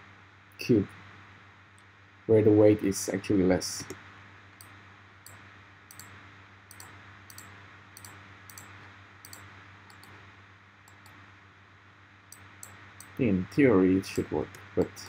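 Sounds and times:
low steady hum: 0:00.0 - 0:15.0
faint computer mouse clicks: 0:04.6 - 0:06.1, 0:06.7 - 0:10.2, 0:10.9 - 0:11.2.

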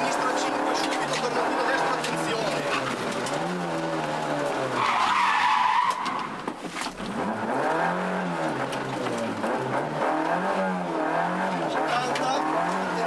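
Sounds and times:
tyres squealing: 0:00.0 - 0:06.4
rally car engine revving: 0:00.0 - 0:13.0.

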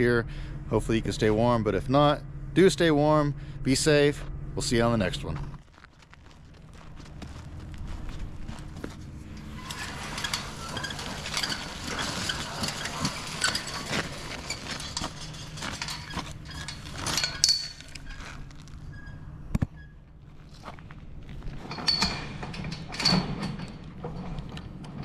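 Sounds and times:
faint low hum: 0:00.0 - 0:25.0
footsteps crunching: 0:05.2 - 0:18.9
clatter: 0:05.6 - 0:18.8
clinks and knocks: 0:08.7 - 0:18.6, 0:21.5 - 0:25.0.

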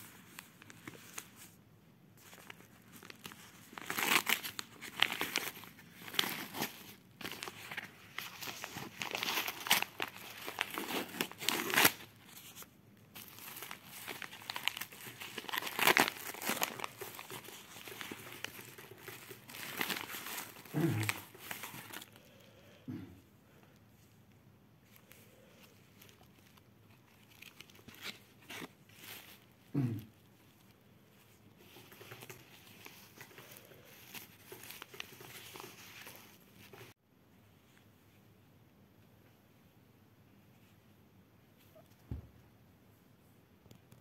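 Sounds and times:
paper and plastic crinkling: 0:00.0 - 0:01.6, 0:02.2 - 0:22.4, 0:24.8 - 0:29.7, 0:30.4 - 0:37.0
envelope tearing: 0:02.4 - 0:12.6, 0:13.2 - 0:22.2.

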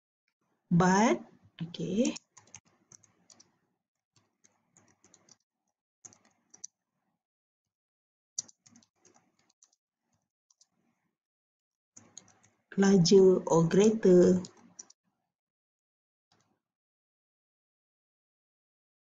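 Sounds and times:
faint keyboard typing: 0:01.6 - 0:03.6, 0:04.2 - 0:05.4, 0:06.0 - 0:06.8, 0:08.4 - 0:10.8, 0:12.0 - 0:12.7, 0:13.8 - 0:15.0.

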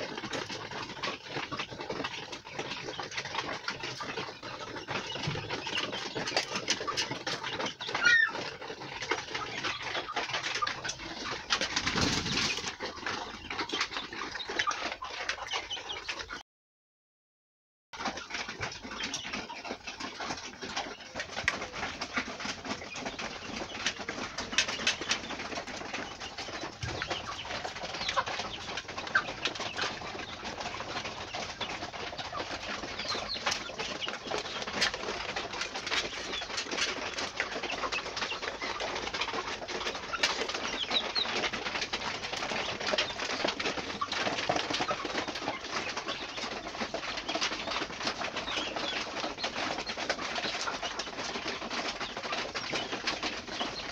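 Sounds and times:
chicks peeping and chirping: 0:00.0 - 0:16.4, 0:18.0 - 0:53.9
wing flapping: 0:10.7 - 0:13.2.

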